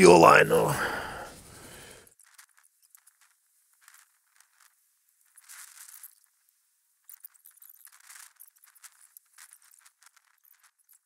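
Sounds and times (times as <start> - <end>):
faint crackles and hiss: 0.0 - 11.0.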